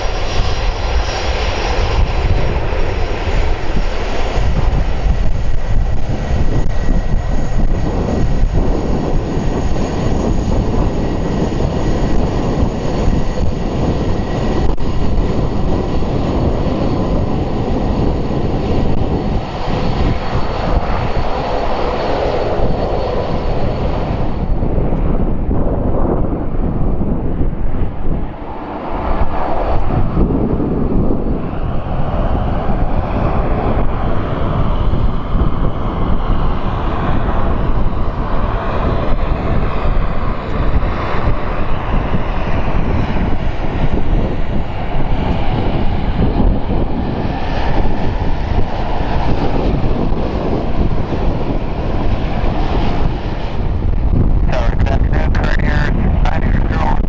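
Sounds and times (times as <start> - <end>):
jet engines at taxi power: 0.0 - 57.0
wind buffeting microphone: 0.0 - 57.0.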